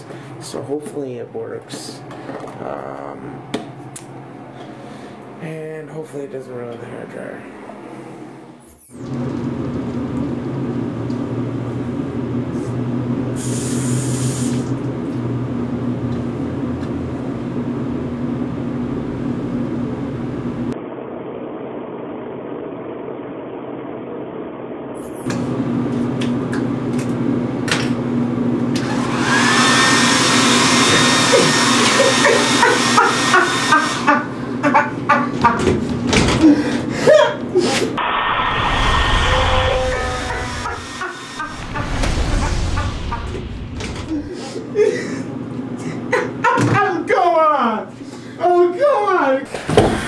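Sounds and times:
hair dryer running: 28.7s - 34.4s, 39.9s - 41.5s.

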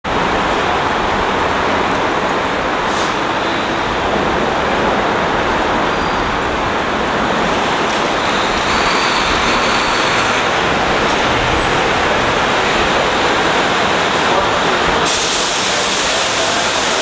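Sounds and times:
road traffic rush: 0.0s - 17.0s
brief high hiss: 2.9s - 3.3s, 15.0s - 17.0s.

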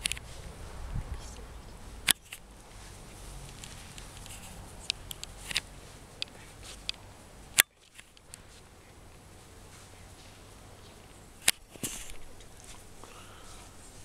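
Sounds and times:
faint outdoor background: 0.0s - 14.0s
light sharp clicks: 3.4s - 7.0s, 10.2s - 13.7s.

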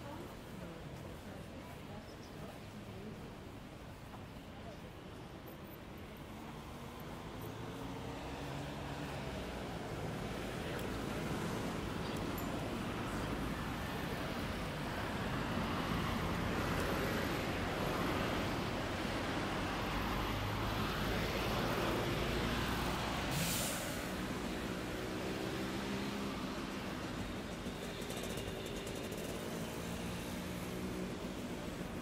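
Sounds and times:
city street traffic: 0.0s - 32.0s
air brake hiss: 23.3s - 24.2s.

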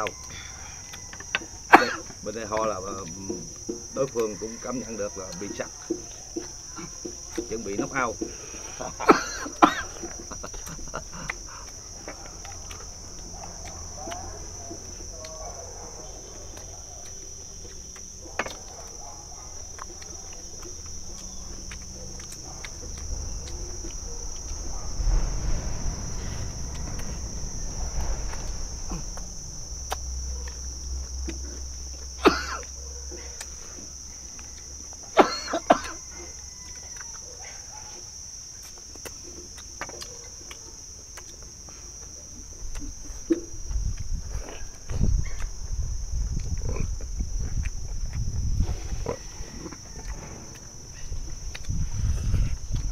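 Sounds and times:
insects chirring: 0.0s - 52.9s
low rumble: 21.4s - 32.2s.

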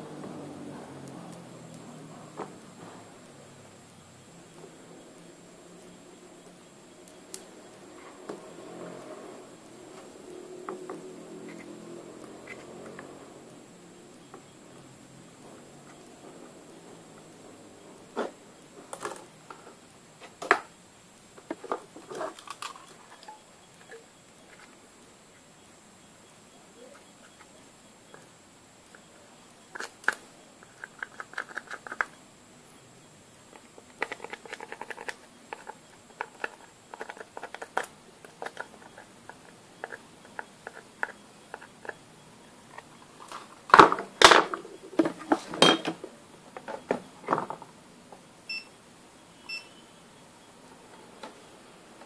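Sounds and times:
faint short beeps: 25.6s - 28.3s, 48.5s - 50.5s.

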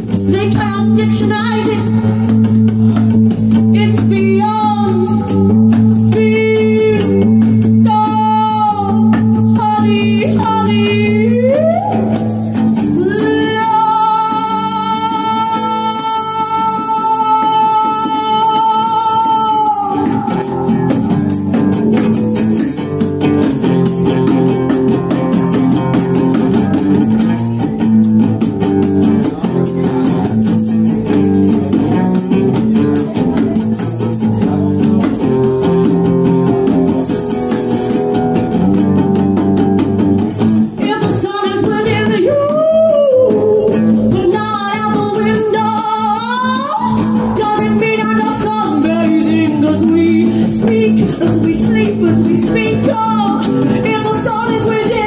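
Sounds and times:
woman singing into microphone: 0.0s - 21.8s, 40.6s - 55.0s
live band playing groove: 0.0s - 55.0s
rattling percussion: 0.0s - 55.0s.

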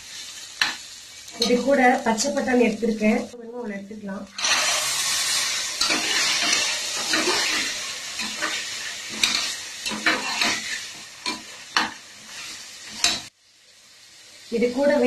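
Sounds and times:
peas sizzling in hot oil: 0.0s - 15.0s
metal spatula scraping a pot: 4.4s - 13.3s.

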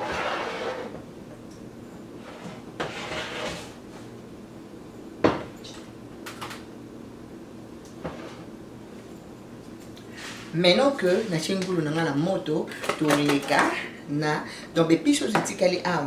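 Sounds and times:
pan scraping rustle: 0.0s - 1.0s, 2.2s - 3.8s.

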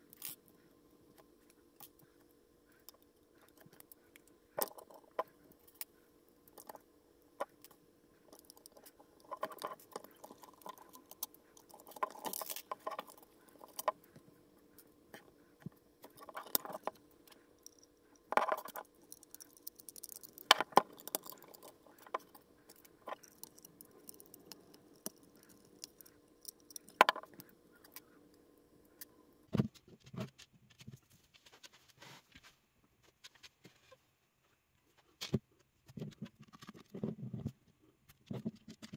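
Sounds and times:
plastic toy bricks clicking: 8.4s - 14.0s, 17.6s - 28.0s.

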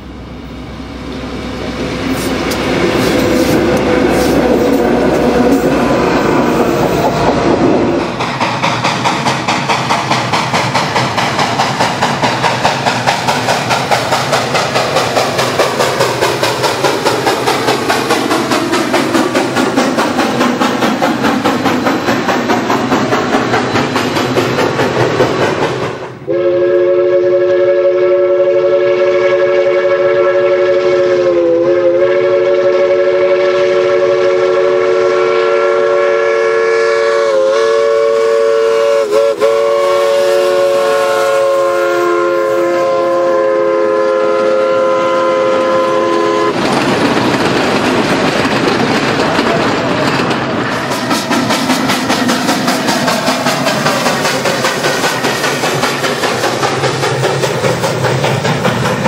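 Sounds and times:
train rolling: 0.0s - 59.0s
locomotive exhaust chuffing: 1.6s - 27.3s, 37.2s - 59.0s
steam locomotive chime whistle: 26.2s - 46.6s.

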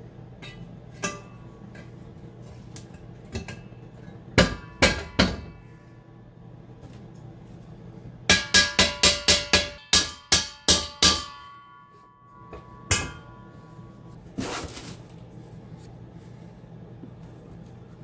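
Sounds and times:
hammer striking metal: 4.4s - 5.7s, 8.3s - 13.9s.

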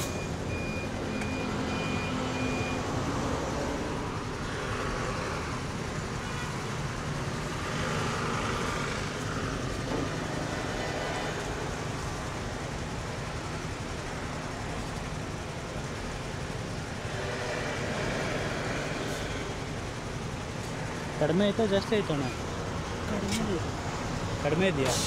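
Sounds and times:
short electronic beeps: 0.0s - 2.9s
road traffic noise: 0.0s - 25.0s
vehicles passing: 0.0s - 25.0s.

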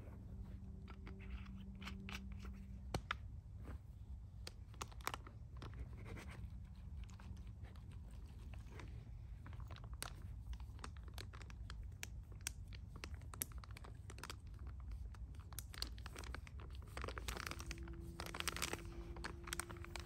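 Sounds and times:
meal pouch crinkling and clicking: 4.4s - 5.8s, 9.4s - 20.0s.

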